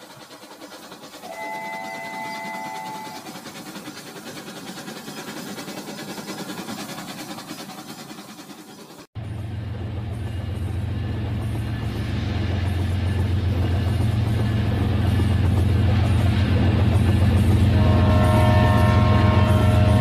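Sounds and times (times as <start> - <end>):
train whistle: 1.2 - 3.4, 17.6 - 20.0.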